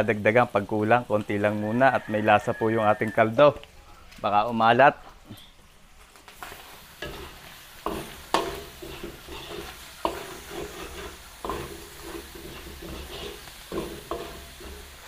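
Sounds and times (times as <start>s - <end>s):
meat sizzling in a pan: 0.0s - 15.0s
utensil stirring in a pan: 6.4s - 15.0s
utensil knocking against pan: 7.9s - 9.2s, 10.0s - 14.9s.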